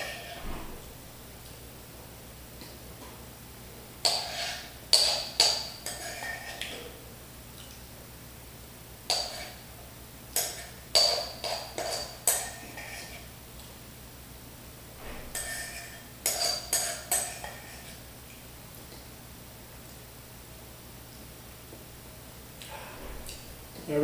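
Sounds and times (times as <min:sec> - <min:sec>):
spoon clinking against bowl: 0:10.4 - 0:13.1.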